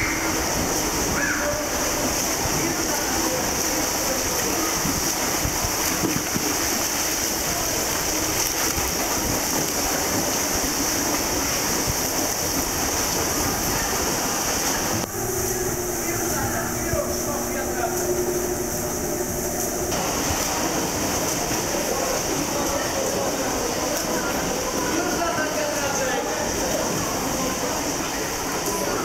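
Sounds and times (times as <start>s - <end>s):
steady hum: 14.8s - 21.2s.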